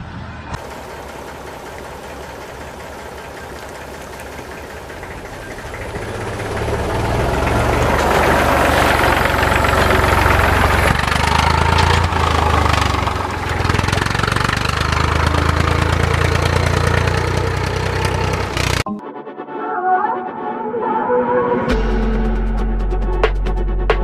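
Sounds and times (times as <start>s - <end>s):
tractor engine rumbling: 0.0s - 18.9s.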